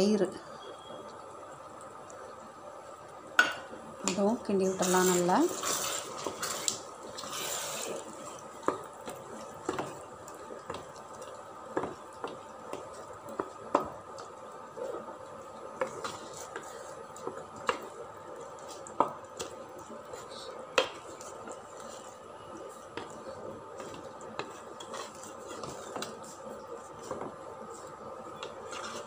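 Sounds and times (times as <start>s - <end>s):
spatula stirring thick mixture: 4.0s - 29.0s
spatula tapping pot: 8.6s - 14.3s, 18.8s - 19.5s, 20.7s - 21.6s, 22.9s - 23.2s, 23.8s - 26.2s.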